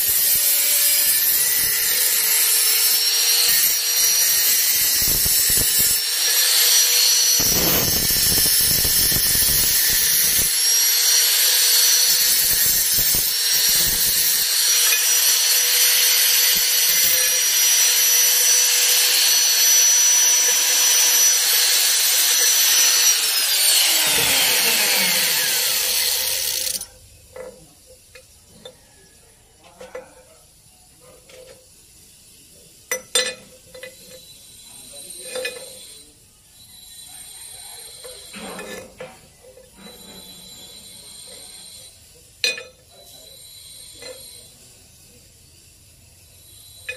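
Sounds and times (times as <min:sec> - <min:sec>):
angle grinder motor whine: 0:00.0 - 0:26.9
metal grinding noise: 0:00.0 - 0:28.8, 0:32.9 - 0:45.4.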